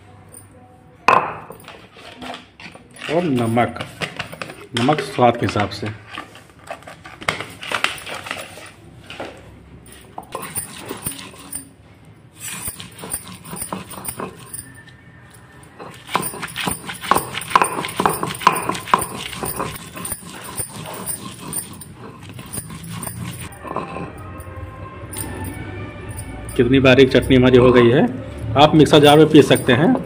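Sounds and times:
stone pestle scraping grinding slab: 0:10.3 - 0:11.7, 0:12.4 - 0:14.9, 0:15.7 - 0:24.4.

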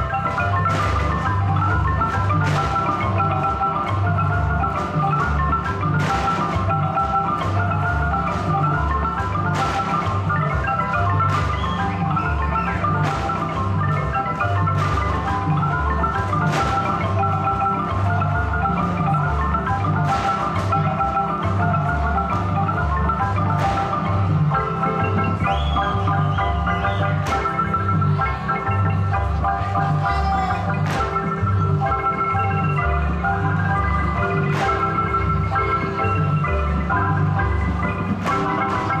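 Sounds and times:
marimba folk music: 0:00.0 - 0:39.0.

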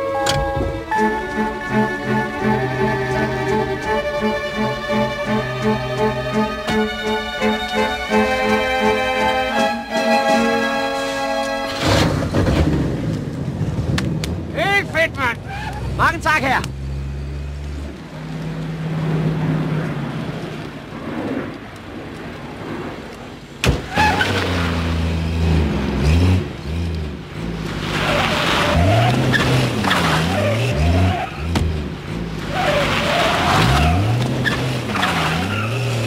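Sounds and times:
car engine revving: 0:23.9 - 0:36.0
tyres squealing: 0:27.8 - 0:36.0.

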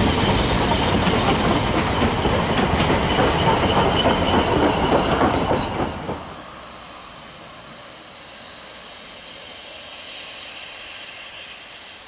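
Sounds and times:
train wheels clicking over rail joints: 0:00.0 - 0:06.4
high wheel squeal: 0:03.0 - 0:06.2.

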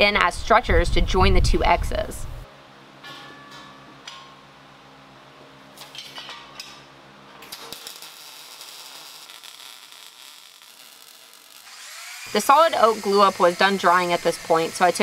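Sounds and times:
welder crackling hiss: 0:07.5 - 0:15.0.

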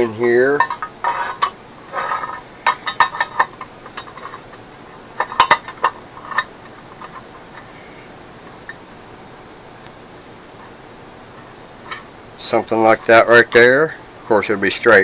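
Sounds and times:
steel plates clinking and scraping: 0:00.0 - 0:07.9, 0:11.3 - 0:13.2.

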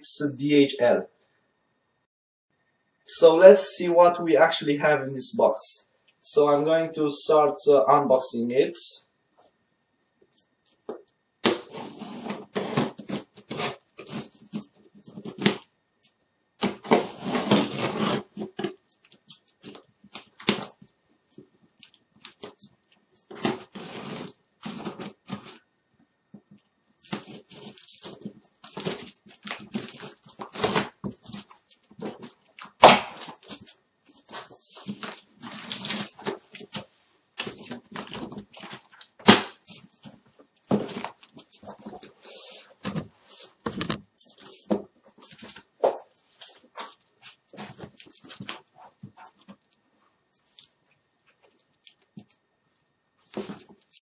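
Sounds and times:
tape and plastic wrap tearing: 0:10.4 - 0:25.6, 0:26.4 - 0:49.8, 0:53.3 - 0:54.0
cardboard scraping: 0:10.9 - 0:15.7, 0:16.6 - 0:18.8, 0:22.2 - 0:25.6, 0:27.0 - 0:49.7, 0:53.2 - 0:54.0.

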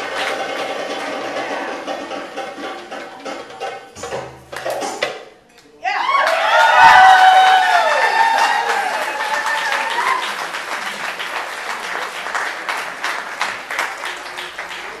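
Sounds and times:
audience applauding: 0:00.0 - 0:01.7, 0:06.0 - 0:15.0.

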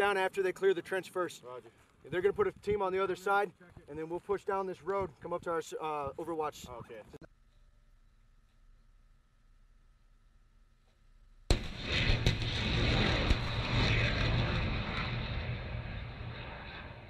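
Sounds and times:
sharp cracks: 0:11.5 - 0:16.9
rocket launch blast: 0:11.5 - 0:17.0
rushing roar: 0:11.5 - 0:17.0.

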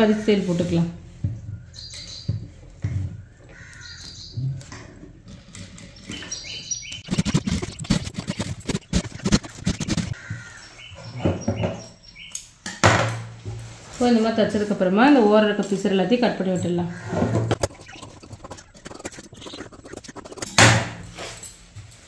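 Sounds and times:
crows cawing: 0:03.5 - 0:04.3, 0:10.1 - 0:10.9, 0:16.9 - 0:17.5.

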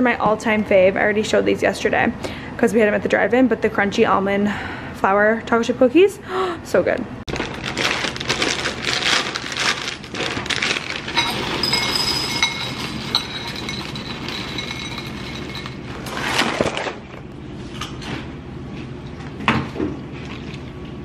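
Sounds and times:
plastic bag crinkling: 0:07.3 - 0:17.0.

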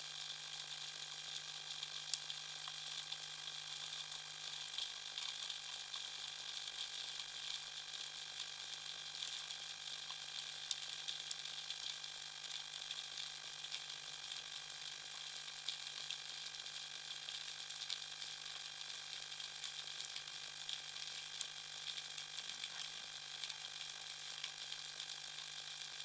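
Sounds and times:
snapping shrimp crackle underwater: 0:01.4 - 0:04.1, 0:19.4 - 0:26.0.

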